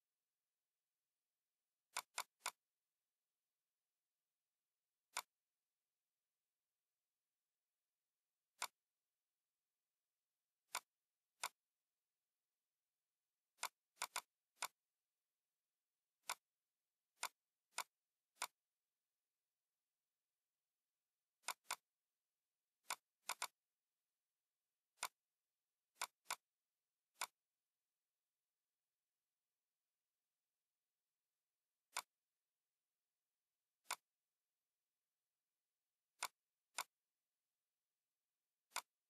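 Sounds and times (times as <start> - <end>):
computer mouse clicks: 1.9 - 2.7, 5.1 - 5.5, 8.5 - 8.9, 10.6 - 11.6, 13.5 - 14.8, 16.2 - 18.7, 21.4 - 21.9, 22.8 - 23.6, 24.9 - 25.3, 25.9 - 27.5, 31.9 - 32.2, 33.8 - 34.2, 36.1 - 37.0, 38.6 - 39.0.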